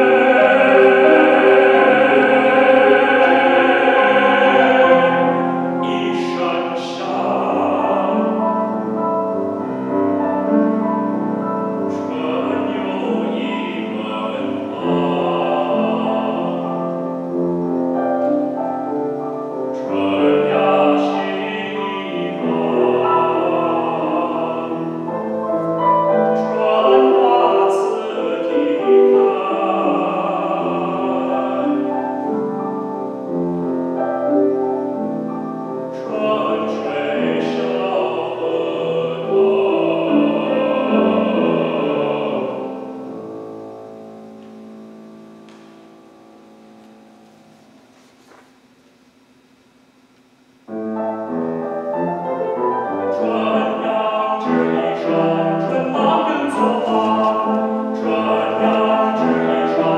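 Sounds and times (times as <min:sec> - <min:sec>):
man singing operatically: 0:00.0 - 0:09.0, 0:11.8 - 0:17.3, 0:19.7 - 0:32.3, 0:35.9 - 0:43.1, 0:53.0 - 0:59.9
grand piano accompaniment: 0:00.0 - 0:48.8, 0:49.9 - 0:59.9.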